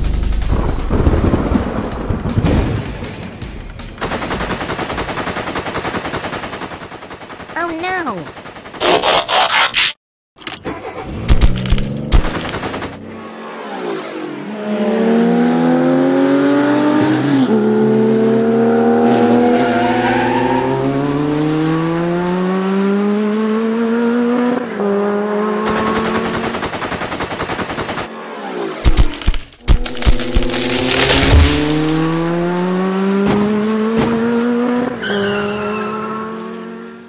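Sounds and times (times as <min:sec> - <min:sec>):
machine-gun fire: 0:04.0 - 0:08.9, 0:11.3 - 0:13.0, 0:25.7 - 0:28.1, 0:28.8 - 0:32.5
car engine revving: 0:10.8 - 0:37.0.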